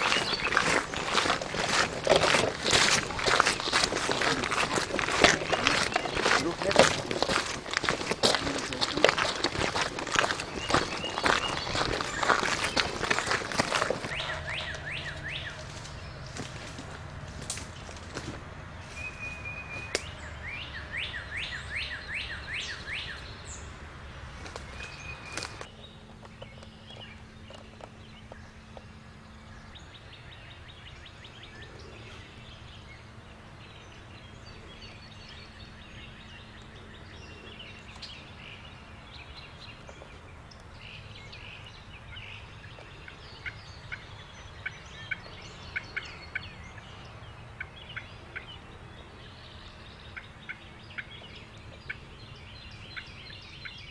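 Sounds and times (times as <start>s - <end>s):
turkey call notes: 0.0s - 16.7s
songbird chirps: 0.0s - 53.9s.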